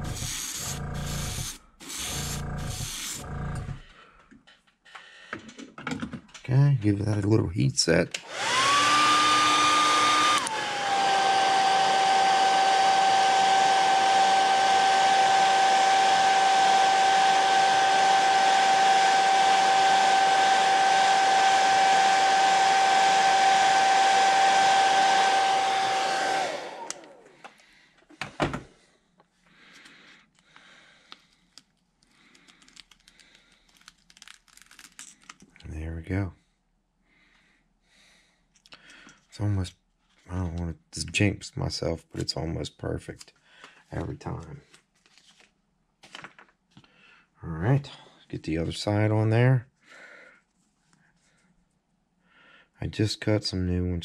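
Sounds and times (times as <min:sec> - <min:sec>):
hair dryer blowing: 0:00.0 - 0:03.8, 0:08.2 - 0:27.5
faint handling sounds: 0:29.1 - 0:35.7, 0:43.1 - 0:46.9.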